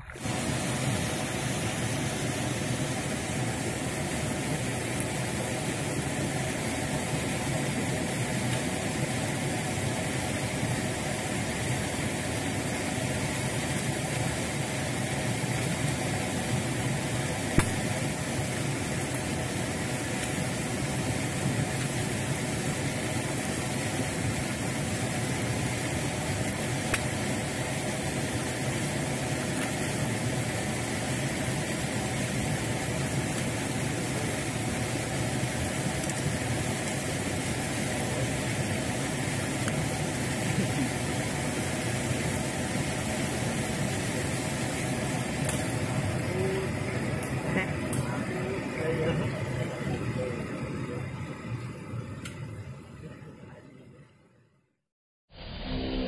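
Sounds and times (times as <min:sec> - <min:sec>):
steady engine-like drone: 0:44.8 - 0:53.6.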